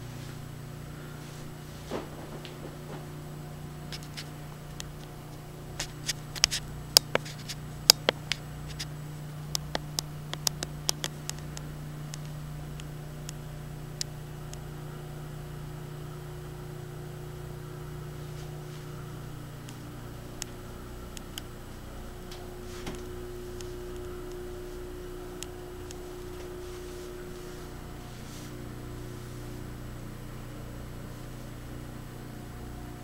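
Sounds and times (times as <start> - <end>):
low hum of room equipment: 0.0 - 33.0
sharp clicks and taps: 7.9 - 8.9, 9.5 - 12.9.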